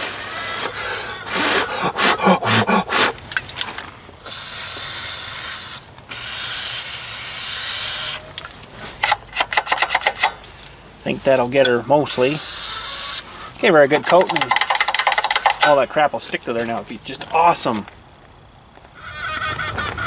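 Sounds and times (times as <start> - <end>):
aerosol spray can hissing: 4.3 - 8.2.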